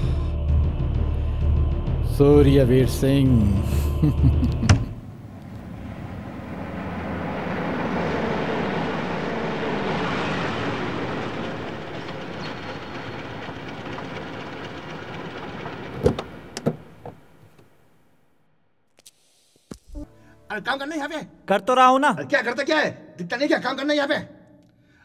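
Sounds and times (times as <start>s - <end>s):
jeep engine and tyres driving past: 2.3s - 17.6s
car doors clunking open: 4.5s - 5.7s, 15.6s - 17.7s.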